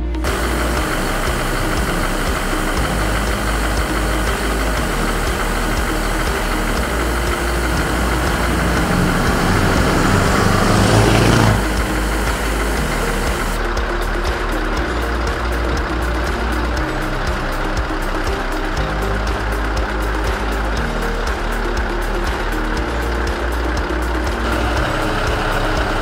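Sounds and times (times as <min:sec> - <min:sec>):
diesel truck engine passing: 0:00.2 - 0:13.7, 0:24.0 - 0:26.0.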